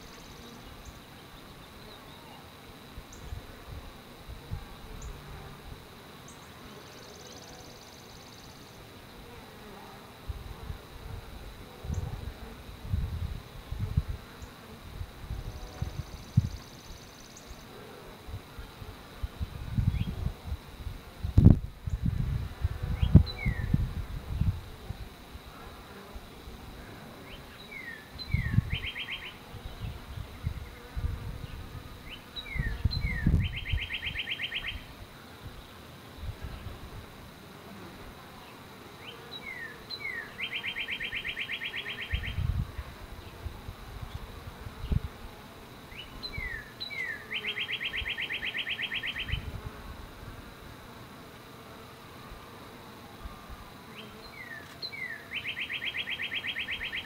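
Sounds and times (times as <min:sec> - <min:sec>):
songbird singing: 0:00.0 - 0:03.5, 0:15.9 - 0:17.7, 0:19.8 - 0:20.2, 0:22.9 - 0:24.5, 0:27.2 - 0:35.9, 0:38.4 - 0:45.0, 0:45.9 - 0:49.5, 0:53.2 - 0:57.0
bees buzzing: 0:00.0 - 0:57.0
songbird trilling: 0:27.3 - 0:29.4, 0:32.1 - 0:34.9, 0:39.4 - 0:42.5, 0:45.9 - 0:49.5, 0:54.4 - 0:57.0.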